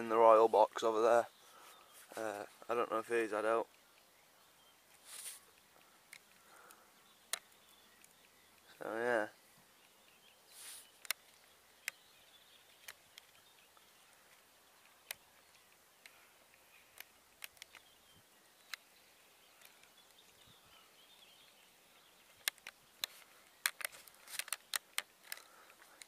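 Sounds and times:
distant birdsong: 0.0 - 26.0
light clicks: 4.9 - 8.8, 10.8 - 12.0, 12.7 - 17.9, 18.6 - 20.5, 22.2 - 26.0.

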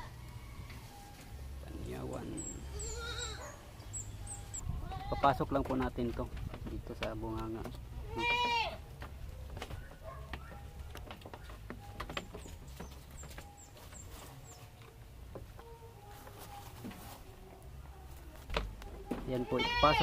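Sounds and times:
faint bird chirps: 2.2 - 4.7
young goat bleating: 2.6 - 3.5, 4.7 - 5.4, 8.0 - 8.8, 19.4 - 20.0
handling clicks and rustling: 8.9 - 17.3.

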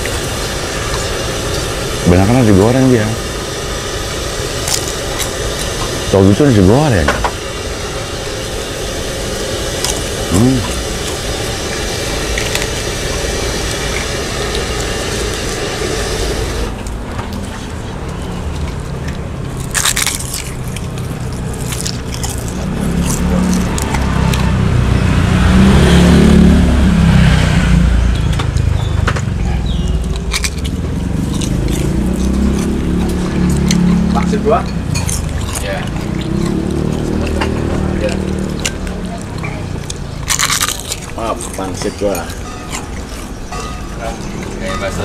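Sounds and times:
motor engine running: 0.0 - 45.0
utensils clinking against bowls: 28.2 - 45.0.

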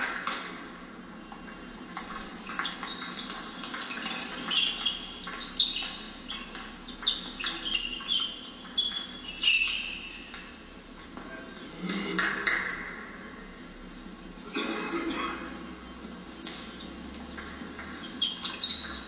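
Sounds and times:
sports shoes squeaking on floor: 1.3 - 10.7, 15.9 - 19.0.

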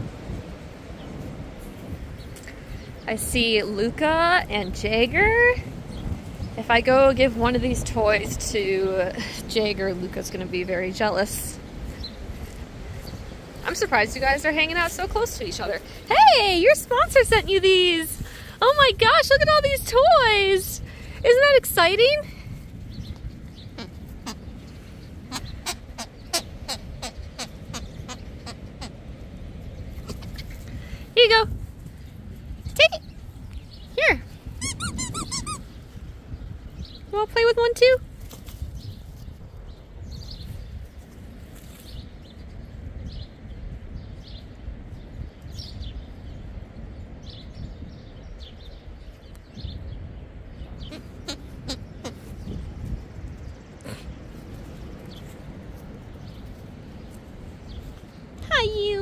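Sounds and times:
steady low rumble: 0.0 - 59.0
small birds chirping: 0.8 - 7.2, 7.8 - 59.0
squeaky toy squeaking: 34.6 - 35.6.

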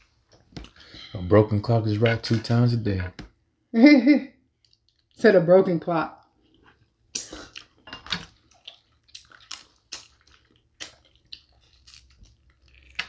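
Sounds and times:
wet chewing and sucking: 4.6 - 5.2, 6.4 - 13.0
lip smacks: 7.1 - 7.8, 8.5 - 13.0.

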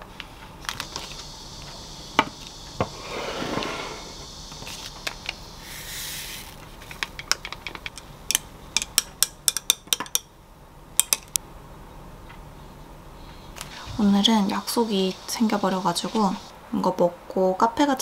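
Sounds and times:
soft scrape: 2.9 - 4.2
short hiss: 5.6 - 6.6.

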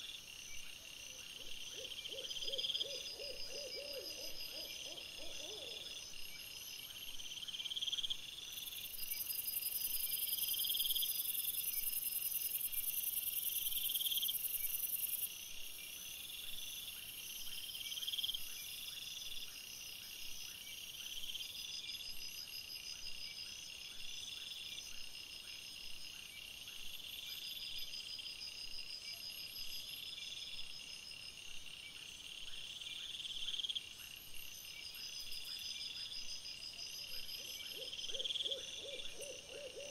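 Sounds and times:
high continuous insect buzz: 0.0 - 39.9
insects chirping: 0.0 - 39.9.

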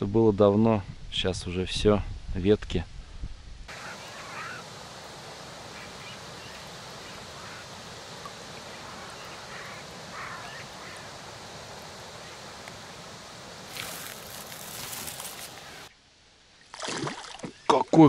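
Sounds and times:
wind hiss: 0.9 - 16.3
small birds chirping: 3.7 - 16.0.

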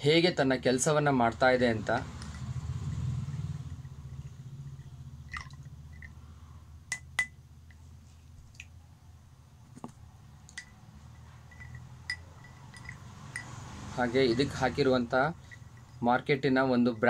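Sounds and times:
low steady hum: 0.0 - 17.0
stick clinking against glass: 6.9 - 7.4, 10.5 - 16.1.

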